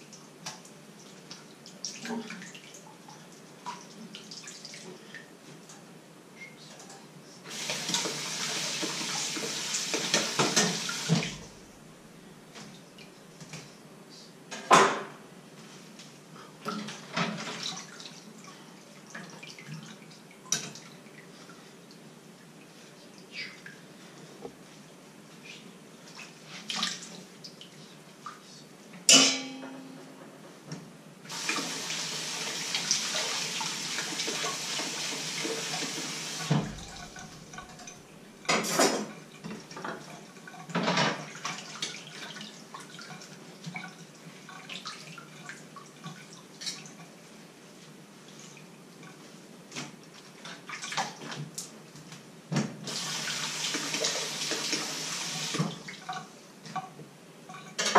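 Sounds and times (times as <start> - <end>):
dishes and cutlery clinking: 29.1 - 30.2, 57.5 - 57.9
loud metallic clang: 29.1 - 30.2.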